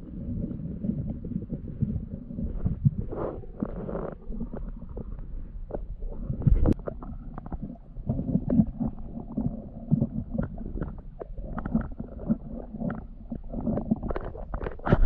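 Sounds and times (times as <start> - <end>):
underwater rumble of moving water: 0.0 - 15.0
stones clicking underwater: 9.4 - 15.0.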